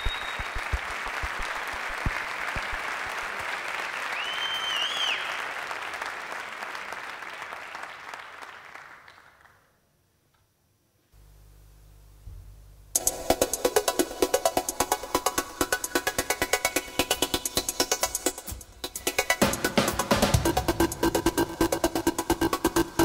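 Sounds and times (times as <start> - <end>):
whistle from crowd: 0.0 - 0.8, 4.0 - 5.4
audience applauding and cheering: 0.0 - 9.5.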